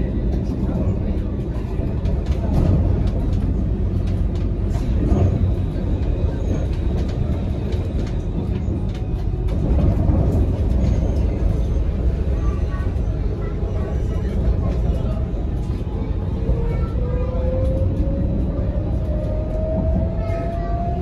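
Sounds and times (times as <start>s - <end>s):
tram wheels rumbling: 0.0s - 21.0s.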